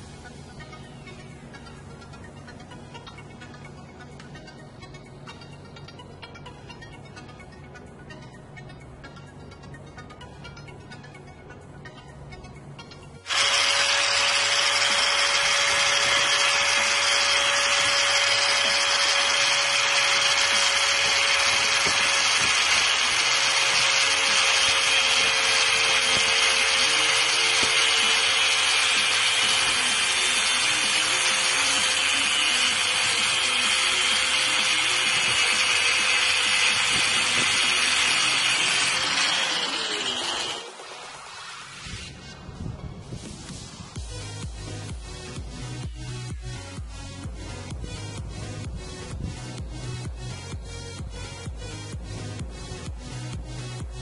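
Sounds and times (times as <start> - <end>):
angle grinder cutting metal: 13.3 - 42.2.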